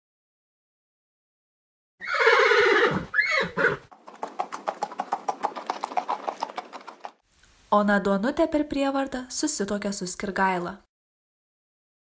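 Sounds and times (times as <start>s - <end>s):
horse whinnying: 2.0s - 7.1s
hooves galloping: 2.9s - 7.2s.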